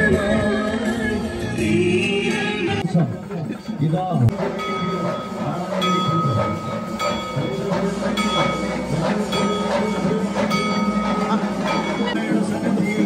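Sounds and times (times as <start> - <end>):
crowd murmur: 1.8 - 13.0
bell struck rhythmically: 4.3 - 13.0.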